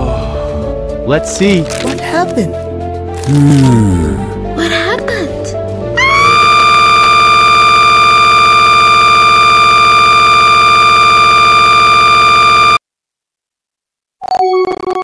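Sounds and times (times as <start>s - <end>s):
loud steady buzzing tone: 6.0s - 12.8s.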